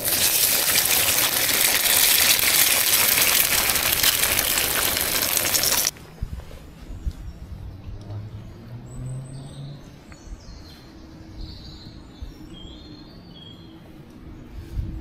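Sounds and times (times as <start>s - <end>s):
eggs sizzling in hot fat: 0.0s - 5.9s.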